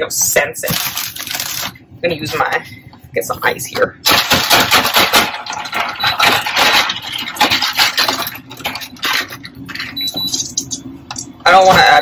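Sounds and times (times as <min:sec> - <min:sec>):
ice cubes clattering: 0:04.2 - 0:10.0.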